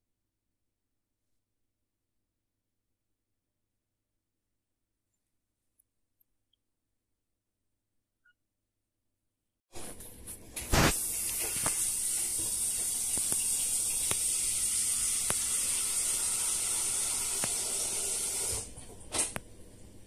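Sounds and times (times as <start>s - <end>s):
steady high hiss: 10.6s - 18.7s.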